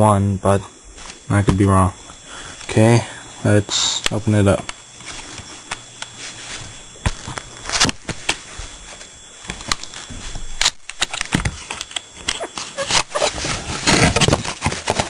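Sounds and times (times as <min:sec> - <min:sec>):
cardboard box being opened: 0:12.4 - 0:15.0.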